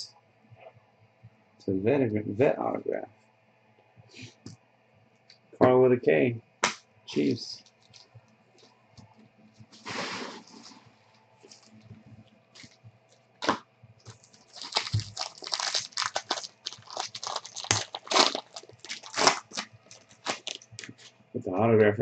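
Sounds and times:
foil pack tearing and crinkling: 7.2 - 8.1, 12.6 - 12.8, 13.4 - 21.1.

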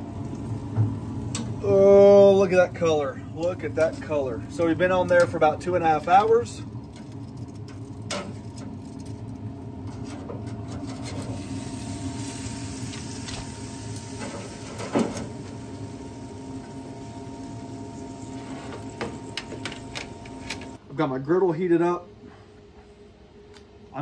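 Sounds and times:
steady hum: 0.0 - 24.0
metal tongs scraping on grate: 9.8 - 11.4.

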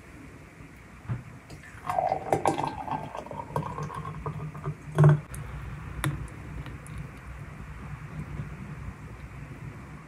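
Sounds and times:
thick milkshake pouring: 1.6 - 4.7.

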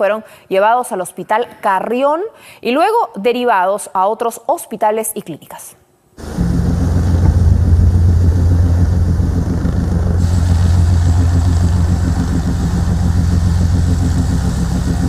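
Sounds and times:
helicopter engine and rotor drone: 6.2 - 15.0.

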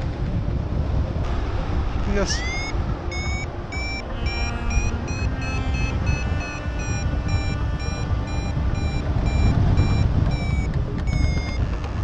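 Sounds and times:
wind on microphone: 0.0 - 12.0
variometer short high beeps: 2.3 - 11.6.

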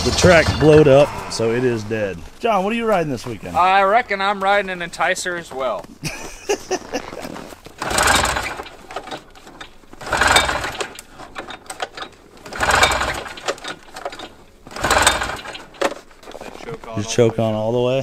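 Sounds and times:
engine turning over: 7.6 - 16.1
recoil cord pull start: 7.8 - 16.0.

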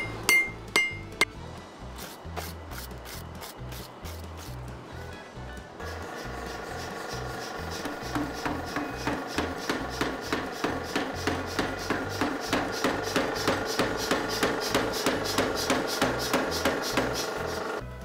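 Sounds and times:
power hammer striking hot steel: 0.0 - 1.3, 5.8 - 17.8
background music: 0.0 - 18.0.

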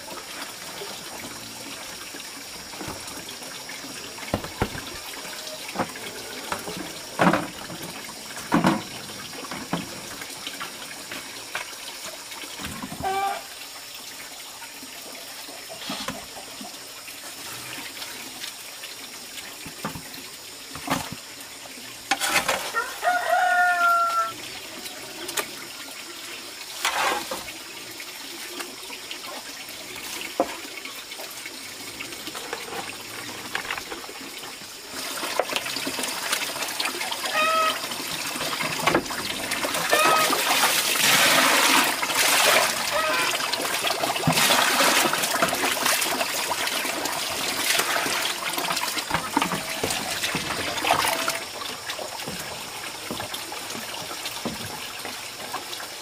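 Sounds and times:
water splashing in a metal pot: 0.0 - 56.0
rooster crowing: 22.7 - 24.4.

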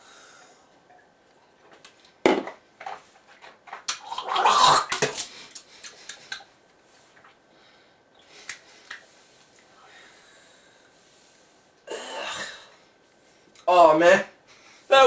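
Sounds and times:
man gulping liquid: 3.9 - 6.4
man gagging and spitting: 4.0 - 5.2.

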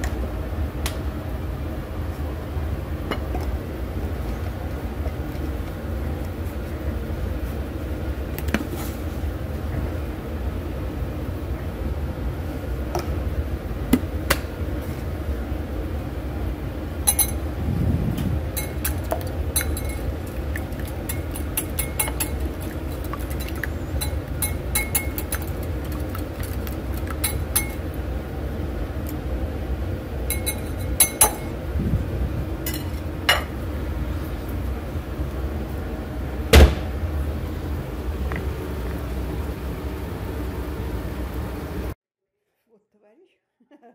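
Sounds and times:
steady low hum: 0.0 - 42.0
whisk clinking against bowl: 17.1 - 17.4, 18.6 - 27.8, 30.3 - 31.5.

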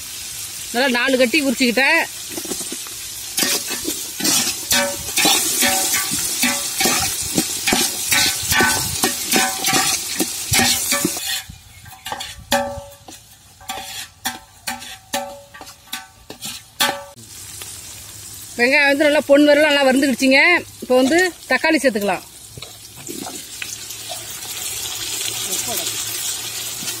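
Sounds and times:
oil sizzling: 0.0 - 27.0
metal ladle scraping pot: 2.3 - 17.2.

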